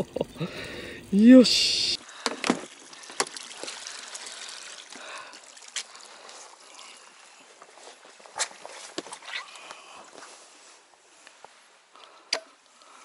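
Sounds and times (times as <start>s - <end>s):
water trickling and dripping: 0.0s - 9.2s.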